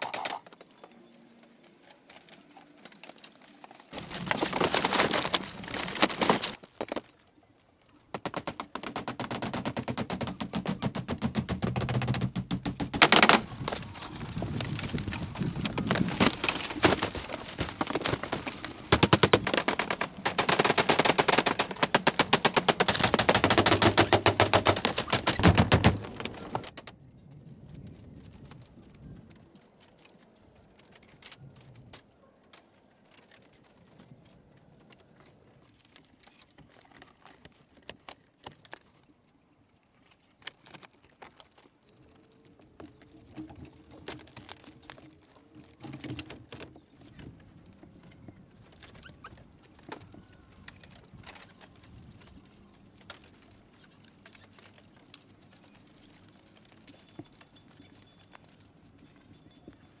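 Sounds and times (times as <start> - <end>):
bamboo shutters clicking: 0.0 - 7.2, 7.8 - 27.0, 40.1 - 58.6.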